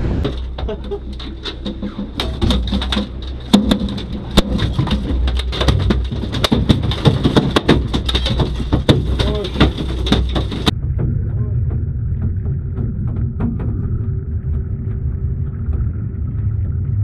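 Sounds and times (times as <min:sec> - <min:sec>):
steady low hum: 0:00.0 - 0:17.0
knocks on boat deck: 0:01.6 - 0:10.7.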